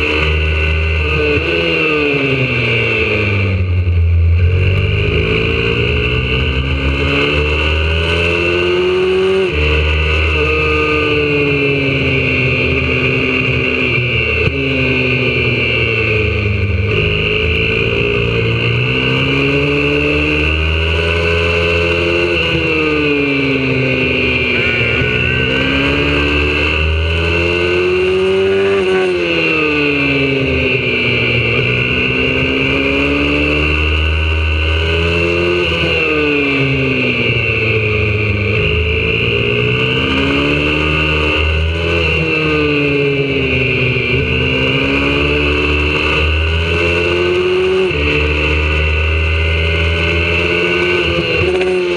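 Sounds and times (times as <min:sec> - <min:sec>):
motorbike engine revving: 0:00.0 - 0:51.9.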